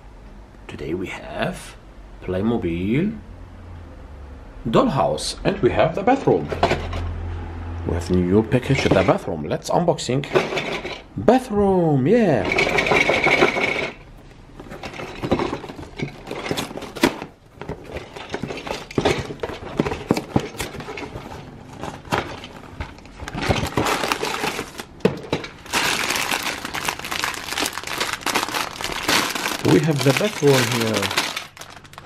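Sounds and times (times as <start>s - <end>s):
plastic bags crinkling: 14.6s - 32.0s
cardboard box being opened: 18.9s - 24.9s, 25.7s - 32.0s.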